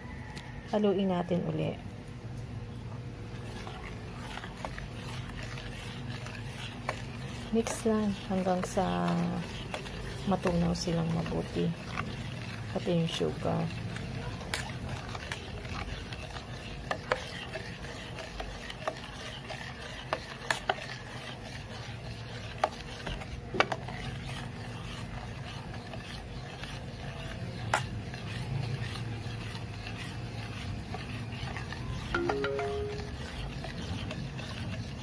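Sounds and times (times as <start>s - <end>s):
metal spoon stirring liquid: 3.1s - 35.0s.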